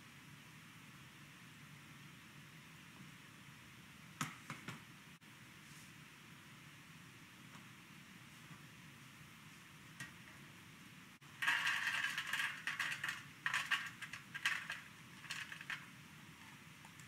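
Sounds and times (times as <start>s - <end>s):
nuts clattering into metal tray: 11.3s - 16.0s.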